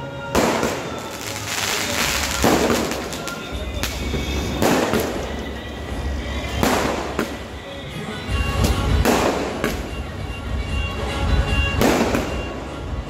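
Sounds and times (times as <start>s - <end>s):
music playing: 0.0s - 13.0s
fireworks bangs: 0.3s - 7.6s, 8.6s - 10.0s, 11.7s - 12.8s.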